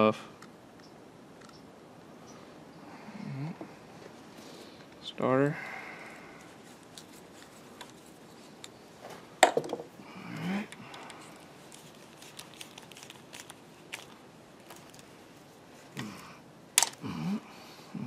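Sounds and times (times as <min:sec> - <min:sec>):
hand tool clicking and scraping: 0:16.8 - 0:17.0.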